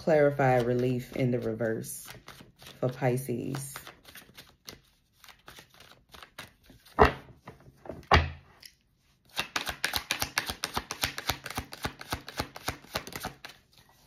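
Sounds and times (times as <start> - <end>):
cards flicking while shuffled: 9.3 - 13.6.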